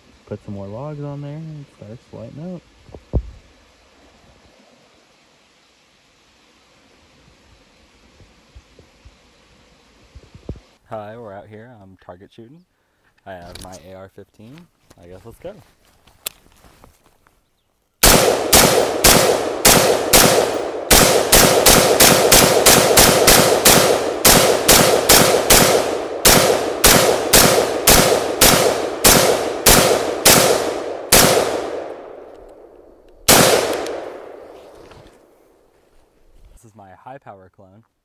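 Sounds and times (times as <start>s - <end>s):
rifle shots: 18.0s - 34.8s.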